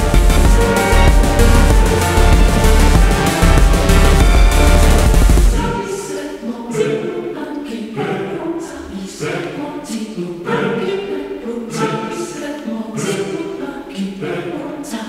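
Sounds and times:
choir singing in harmony: 0.0 - 15.0.

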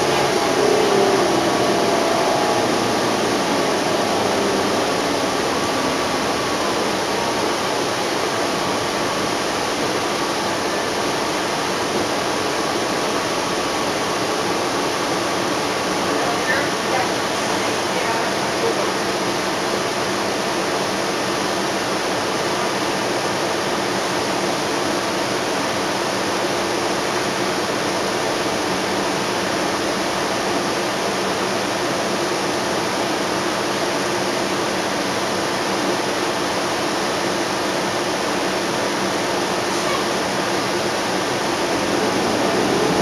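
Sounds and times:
bus cabin rush: 0.0 - 43.0.

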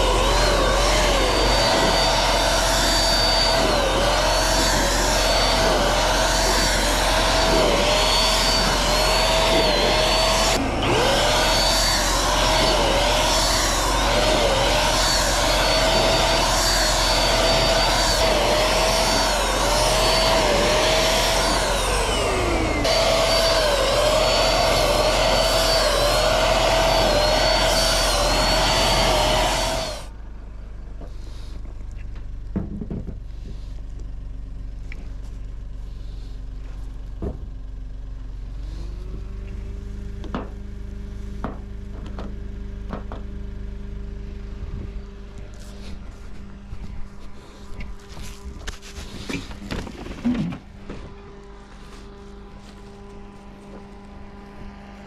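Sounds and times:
electric paint sprayer motor whine: 0.0 - 30.1, 41.9 - 55.0.

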